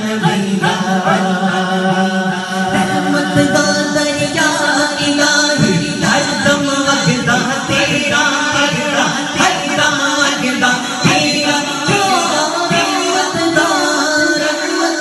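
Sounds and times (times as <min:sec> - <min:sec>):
man singing through microphone: 0:00.0 - 0:15.0.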